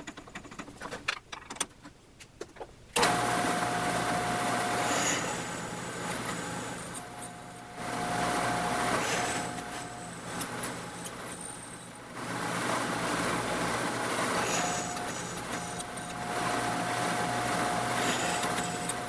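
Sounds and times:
drill press motor running: 3.0 - 19.0
drill boring into aluminum whine: 13.9 - 19.0.

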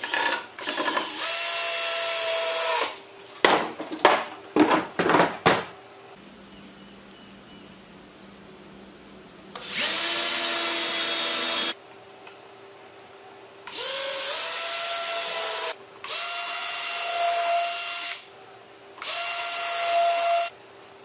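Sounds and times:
cordless drill whining into wood: 0.6 - 3.0, 9.6 - 11.8.

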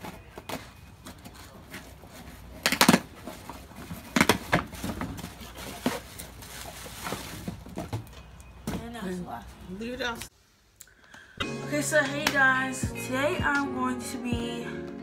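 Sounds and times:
items unpacked from cardboard box: 0.0 - 8.1.

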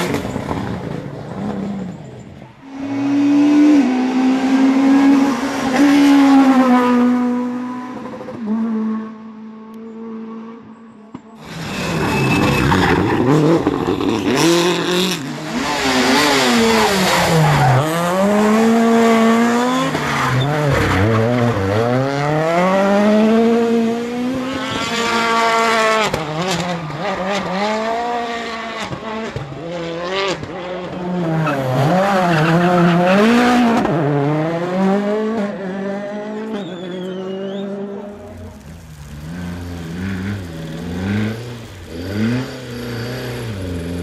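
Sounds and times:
rally car engines revving: 0.0 - 44.0.

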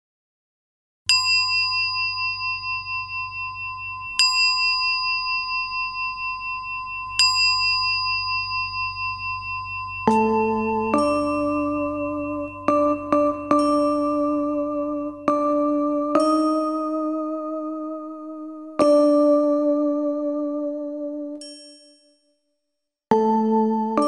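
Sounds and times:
high metal bell ringing: 1.1 - 17.2, 21.4 - 22.2
lower-pitched chime: 1.1 - 22.2.

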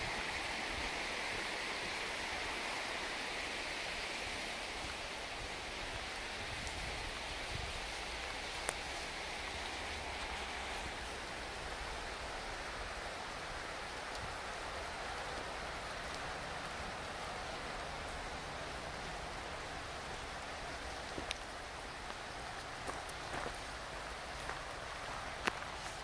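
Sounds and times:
river water rushing: 0.0 - 26.0.

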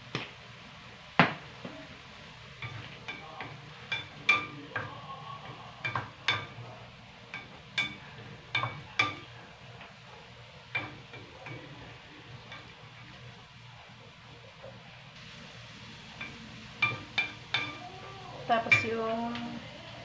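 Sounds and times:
spatula stirring food in pan: 0.0 - 20.0
wooden spatula knocking metal pan: 2.6 - 6.6, 7.3 - 9.3, 10.7 - 11.8, 16.2 - 17.9, 18.6 - 19.0.

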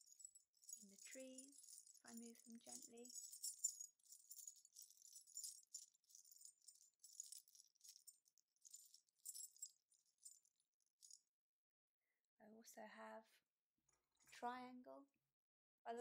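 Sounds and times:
small metal bells jingling: 0.0 - 11.2.

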